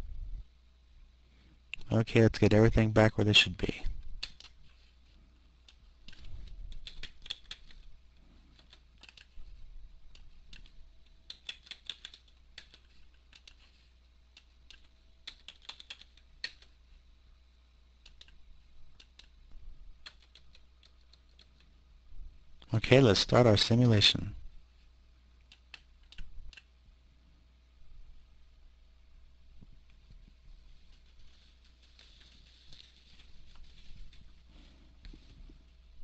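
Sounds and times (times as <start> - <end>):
faint low hum: 0.0 - 36.0
keyboard key clicks: 4.1 - 4.6, 5.7 - 7.8, 11.3 - 13.6, 14.7 - 16.7.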